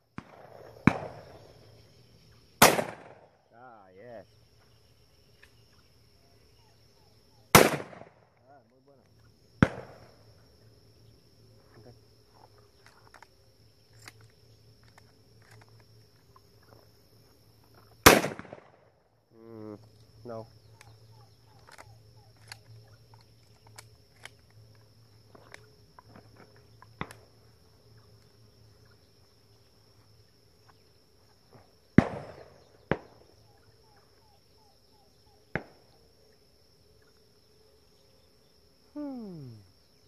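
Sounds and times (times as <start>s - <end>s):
insects droning: 0.0s - 40.0s
loud close shotgun shots: 0.2s - 1.4s, 2.6s - 3.3s, 7.5s - 8.2s, 9.6s - 10.1s, 18.0s - 18.8s, 32.0s - 33.2s
distant gunshot pops: 0.2s - 1.5s, 2.6s - 3.3s, 7.5s - 8.3s, 9.6s - 10.2s, 18.0s - 18.9s, 27.0s - 27.3s, 32.0s - 33.3s, 35.5s - 36.0s.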